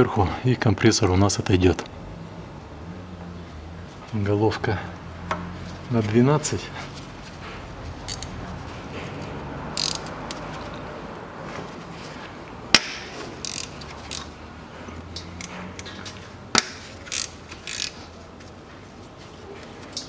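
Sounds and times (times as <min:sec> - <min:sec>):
hand ratchet clicking: 0:08.1 - 0:08.3, 0:09.7 - 0:10.4, 0:12.8 - 0:14.3, 0:16.6 - 0:18.0.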